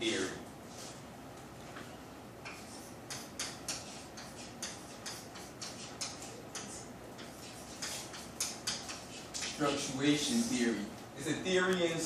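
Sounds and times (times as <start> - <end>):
chalk tapping and scraping: 2.4 - 10.5.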